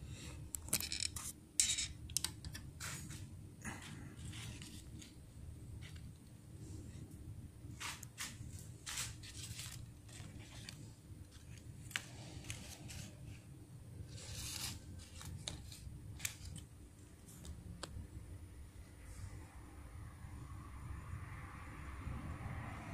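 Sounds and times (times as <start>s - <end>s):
steady low hum: 0.0s - 22.9s
paper rustling and crinkling: 2.8s - 5.2s, 7.8s - 13.5s, 14.1s - 17.6s.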